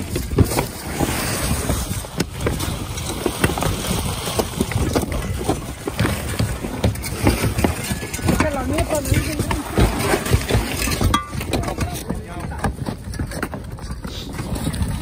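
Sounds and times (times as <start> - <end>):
wind noise on microphone: 0.0 - 12.1
shingles clattering: 0.0 - 15.0
tools prying and scraping: 4.4 - 14.9.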